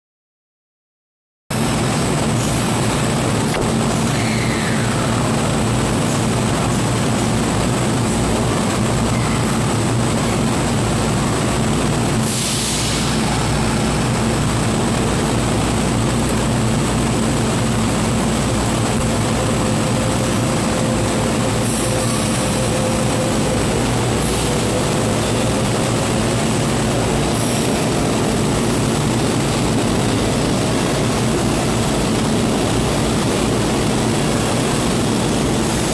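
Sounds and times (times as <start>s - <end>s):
electric train equipment droning: 1.5s - 35.9s
thin high whine: 12.2s - 35.9s
brief air hiss: 12.3s - 13.2s.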